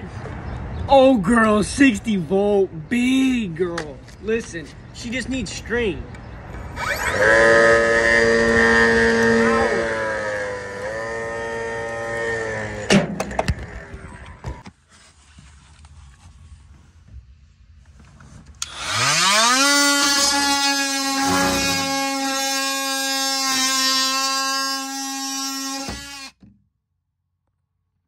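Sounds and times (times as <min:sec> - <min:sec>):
oscillating multi-tool buzzing: 0:06.8 - 0:12.9, 0:18.6 - 0:26.4.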